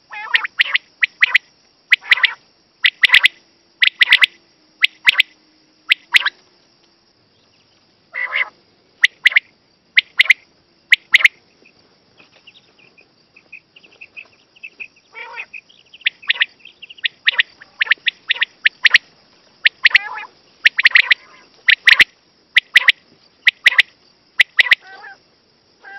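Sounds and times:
steady high hiss: 0.0s - 25.9s
quail calling: 0.1s - 5.3s, 8.1s - 9.4s, 10.0s - 11.4s, 13.5s - 25.2s
soft chirping: 0.2s - 6.6s, 7.2s - 25.2s.

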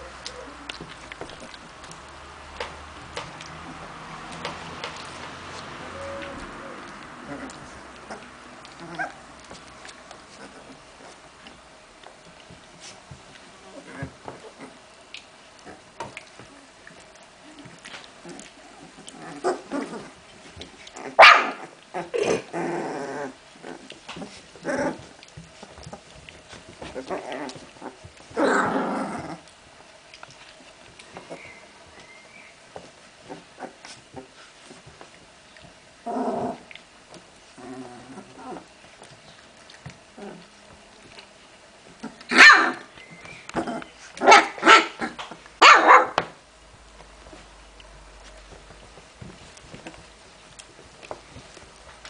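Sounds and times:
puppies growling and yipping: 0.0s - 11.4s, 13.6s - 14.9s, 15.5s - 35.0s, 35.6s - 45.4s
puppy yelping: 5.9s - 9.3s, 21.0s - 22.4s, 42.0s - 46.2s.

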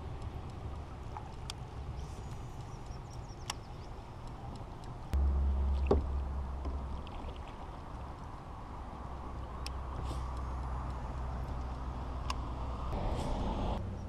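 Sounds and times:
light clicks: 0.0s - 5.2s
low rumble: 0.0s - 14.0s.

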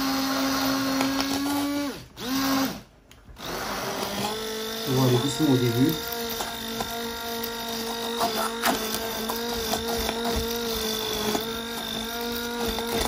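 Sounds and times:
stick blender motor hum: 0.0s - 13.0s
blender knocking on pan: 4.9s - 13.0s.

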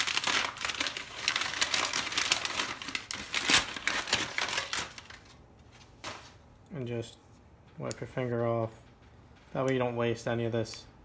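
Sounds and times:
wrapping crinkling: 0.0s - 6.4s.

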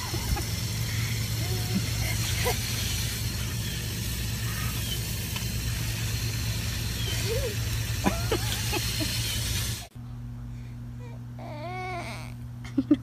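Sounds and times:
garden hose spray hissing: 0.0s - 9.9s
steady low hum: 0.0s - 13.0s.

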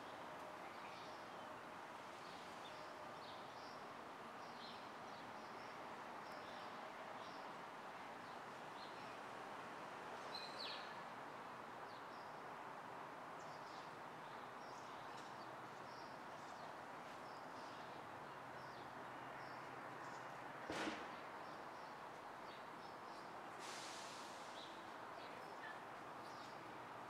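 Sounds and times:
distant city traffic hum: 0.0s - 27.0s
sharp knock: 20.7s - 21.2s.

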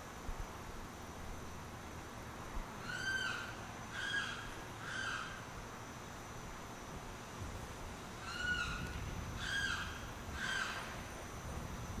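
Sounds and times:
limpkin calling: 2.8s - 5.4s, 8.2s - 10.9s.

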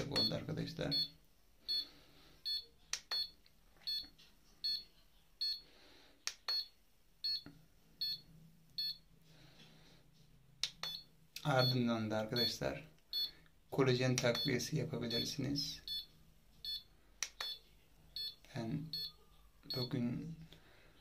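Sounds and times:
sharp clicks: 17.2s - 17.6s.

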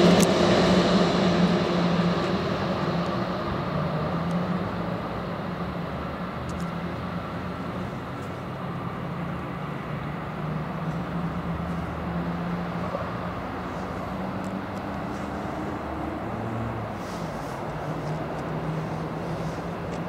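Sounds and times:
distant vehicle rumble: 0.0s - 20.0s.

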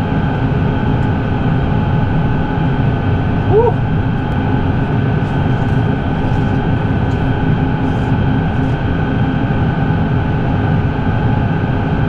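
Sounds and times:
tractor engine drone inside cab: 0.0s - 12.0s.

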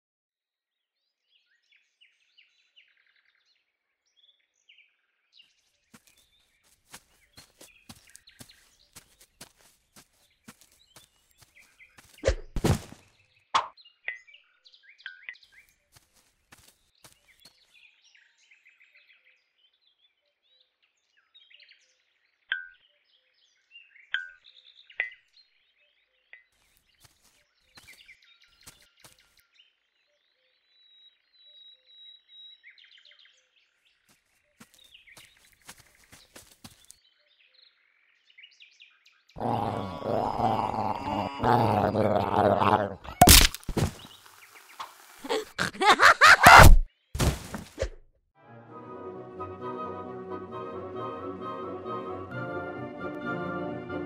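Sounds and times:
songbirds chirping: 1.0s - 12.3s, 12.9s - 43.1s.

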